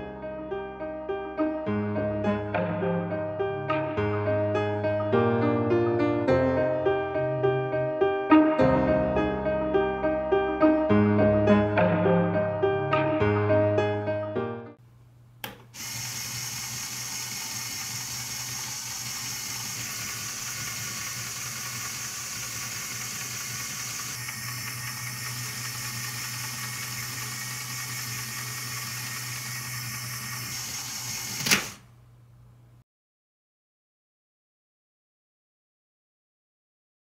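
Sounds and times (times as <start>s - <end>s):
electric motor whirring gears: 15.7s - 31.8s.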